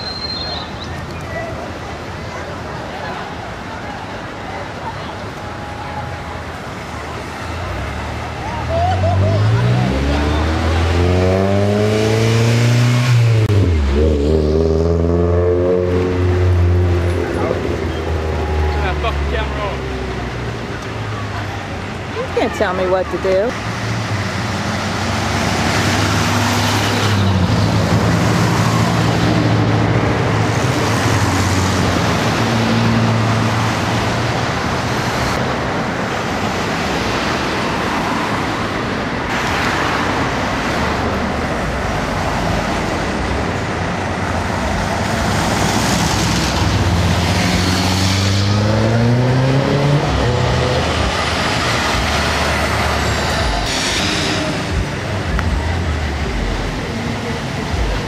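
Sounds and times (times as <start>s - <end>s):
car and truck engines passing: 0.0s - 58.0s
vehicle engine accelerating: 8.7s - 20.5s, 44.2s - 58.0s.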